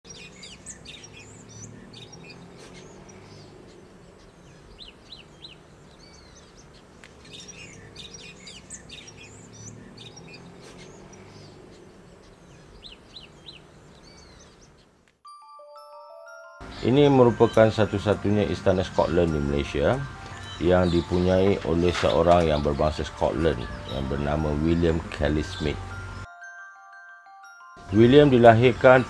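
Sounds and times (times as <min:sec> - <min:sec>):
birds chirping and whistling: 0:00.0 - 0:15.0, 0:16.6 - 0:26.3
low outdoor hum: 0:00.1 - 0:15.1.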